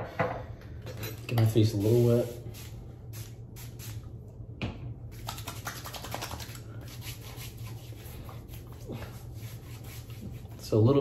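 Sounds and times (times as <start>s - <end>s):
hands rubbing skin: 5.1s - 10.6s.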